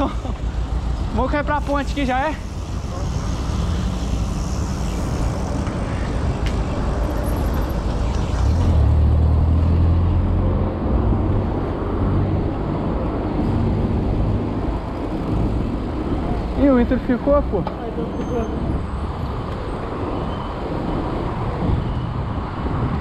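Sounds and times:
car engines passing: 0:00.0 - 0:23.0
wind rumbling on microphone: 0:18.5 - 0:23.0.

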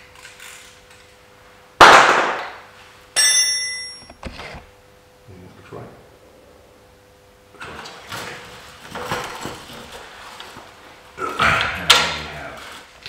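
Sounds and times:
man's wordless vocal sound: 0:11.2 - 0:12.8.

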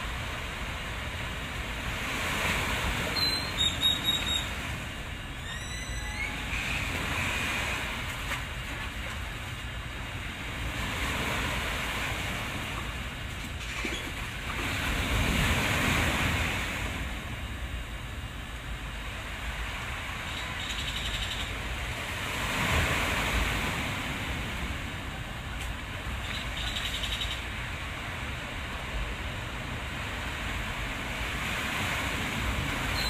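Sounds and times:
waves washing: 0:00.0 - 0:33.0
rising whistles: 0:03.1 - 0:04.6, 0:05.3 - 0:07.6
bird chirps: 0:03.2 - 0:04.6, 0:05.4 - 0:06.5, 0:20.3 - 0:21.5, 0:26.2 - 0:27.4.

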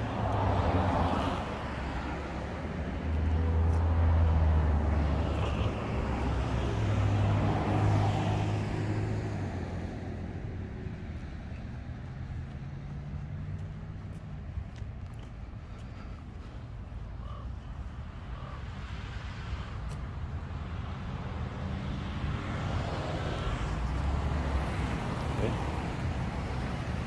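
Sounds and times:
tyre and road hiss: 0:18.0 - 0:21.8.

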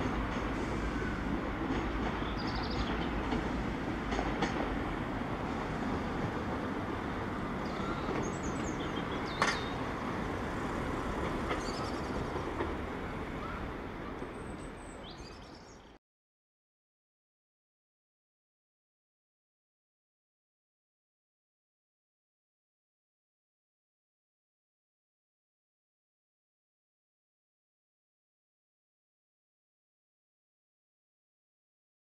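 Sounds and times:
diesel train rumbling: 0:00.0 - 0:16.0.

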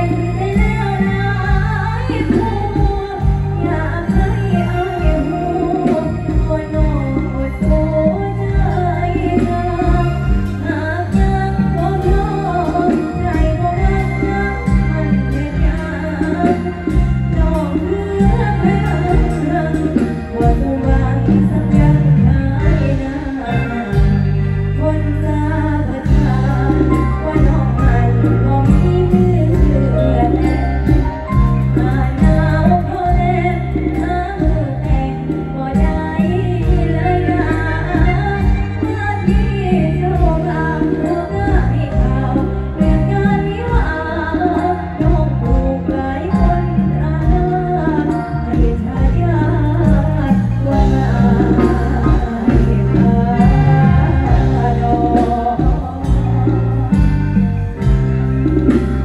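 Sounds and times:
held bass notes: 0:00.0 - 0:59.0
live band music through speakers: 0:00.0 - 0:59.0
person singing: 0:00.0 - 0:59.0
steady drum beat: 0:44.8 - 0:59.0.

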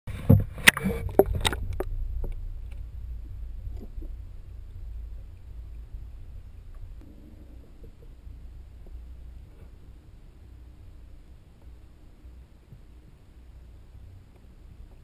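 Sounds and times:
water splashing against camera: 0:00.1 - 0:10.3
low underwater rumble: 0:00.1 - 0:15.0.

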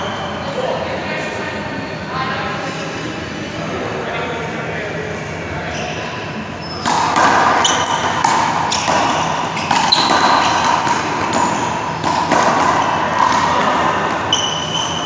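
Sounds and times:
sneakers squeaking on court floor: 0:05.7 - 0:15.0.

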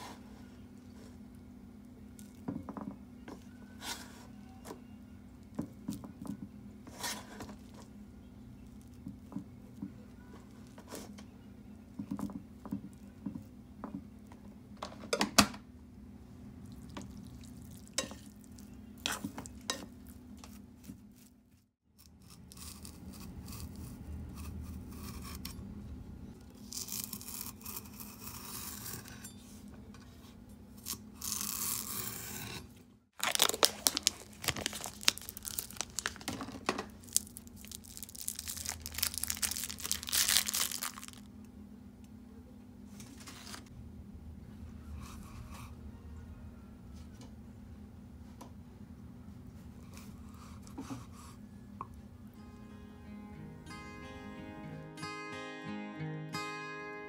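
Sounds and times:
cling film rustling: 0:33.2 - 0:41.2.

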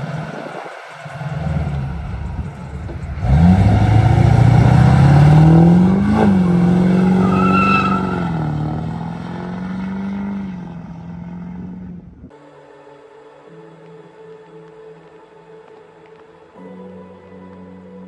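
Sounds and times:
pickup engine accelerating: 0:00.0 - 0:12.3.

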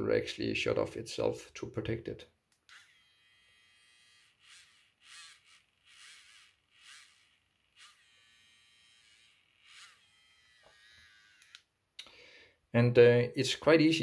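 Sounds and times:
grinding bit rasping: 0:02.7 - 0:11.6
small motor whining: 0:02.7 - 0:11.7.

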